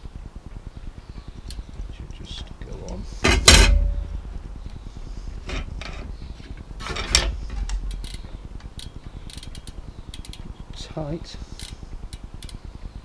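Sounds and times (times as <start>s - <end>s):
metal bicycle parts clinking: 3.2s - 4.3s, 6.8s - 10.5s.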